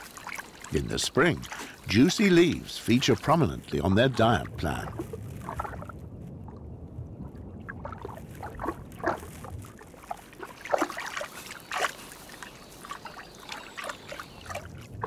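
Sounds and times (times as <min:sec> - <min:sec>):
water splashes: 0:00.0 - 0:15.0
water trickling and sloshing: 0:00.0 - 0:15.0.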